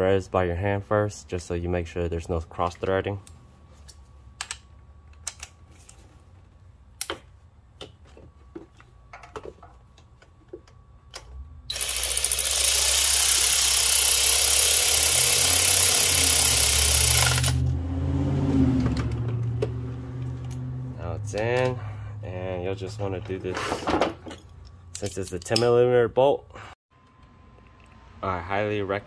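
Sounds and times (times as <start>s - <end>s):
handheld power tool running: 11.7s - 17.7s.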